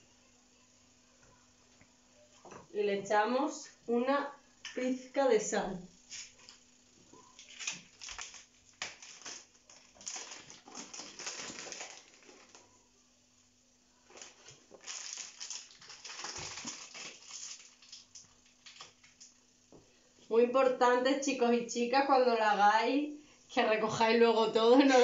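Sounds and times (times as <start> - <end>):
plastic packet crinkling: 7.4 - 12.7, 14.0 - 19.3.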